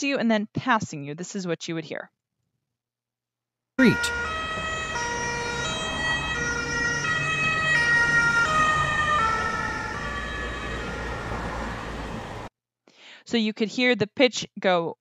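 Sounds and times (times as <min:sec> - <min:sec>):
ambulance siren: 0:03.8 - 0:12.5
road noise rumble: 0:03.8 - 0:12.5.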